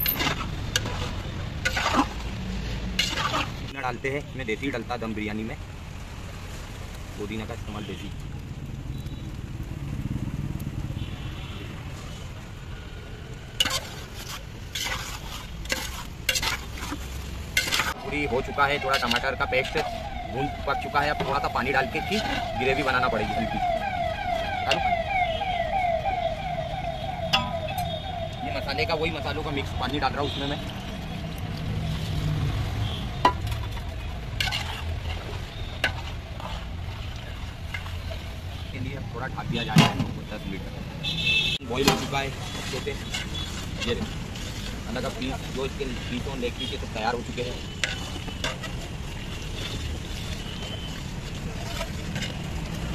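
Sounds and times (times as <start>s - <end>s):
fork scraping metal pot: 0.0s - 2.2s, 3.0s - 3.6s, 13.6s - 20.0s, 34.4s - 36.7s, 41.8s - 45.1s, 47.7s - 48.9s
metal spatula stirring gravy: 0.0s - 2.2s, 13.6s - 23.8s, 33.3s - 38.7s, 41.7s - 52.9s
low frying sizzle: 0.0s - 52.9s
fork stirring thick sauce: 13.6s - 18.0s.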